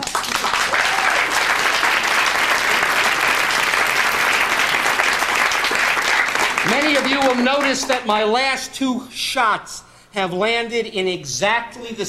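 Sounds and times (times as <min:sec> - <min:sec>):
audience applause: 0:00.0 - 0:08.1.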